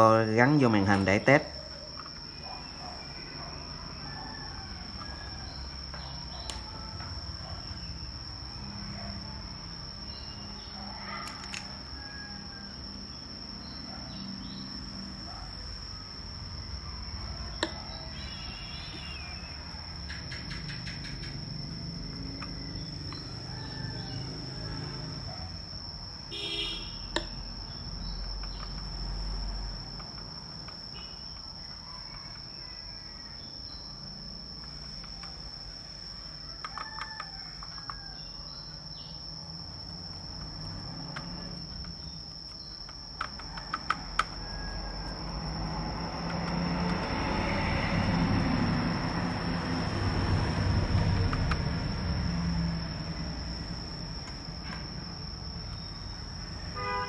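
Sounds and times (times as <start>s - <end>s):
small clicks: 11.2s - 11.7s.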